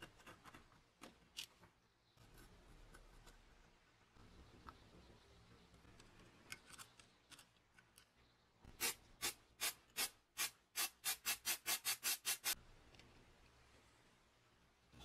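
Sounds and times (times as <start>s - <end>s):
aerosol spray hissing: 8.8s - 12.6s.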